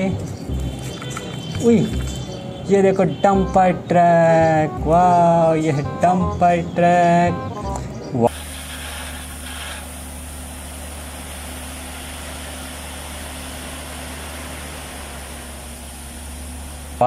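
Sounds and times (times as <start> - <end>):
diesel truck engine running: 0.0 - 17.0.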